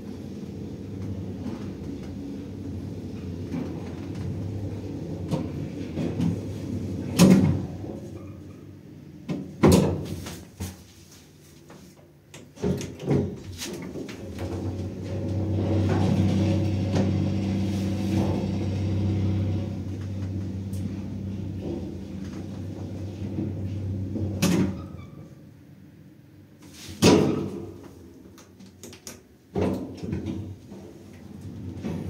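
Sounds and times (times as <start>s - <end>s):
elevator motor hum: 0.0s - 9.3s, 14.0s - 26.1s
elevator doors sliding and thudding: 0.0s - 10.6s, 12.4s - 25.7s, 29.5s - 32.0s.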